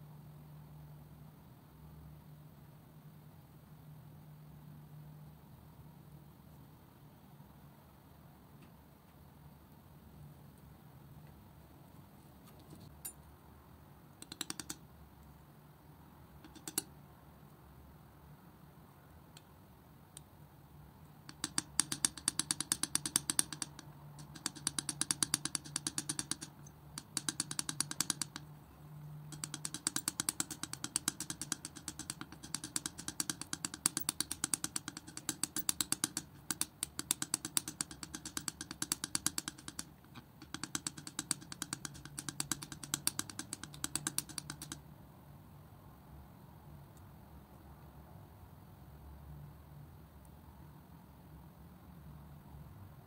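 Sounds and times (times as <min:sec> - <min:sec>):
palette knife clicking in paint: 0:14.2 - 0:14.9, 0:16.4 - 0:16.9, 0:21.2 - 0:28.6, 0:29.3 - 0:44.8.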